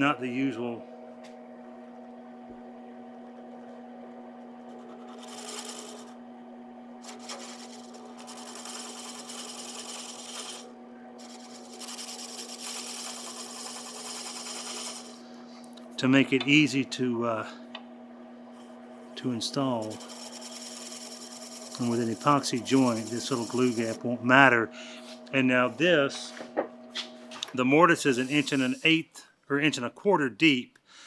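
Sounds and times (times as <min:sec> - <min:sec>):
wood lathe humming: 0:00.5 - 0:26.8, 0:27.6 - 0:28.9
steel tool scraping wood: 0:04.8 - 0:06.1, 0:07.0 - 0:15.2, 0:19.8 - 0:24.0, 0:28.0 - 0:28.9.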